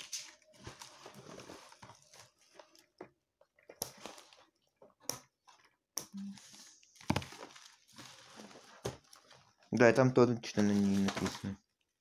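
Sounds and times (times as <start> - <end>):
packaging rustling and crinkling: 0.0 - 4.8, 6.4 - 9.8, 10.4 - 11.6.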